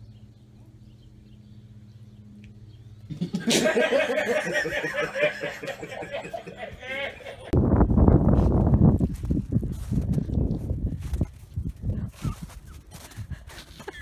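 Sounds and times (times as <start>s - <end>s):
person laughing loudly: 3.1s - 7.6s, 13.5s - 14.0s.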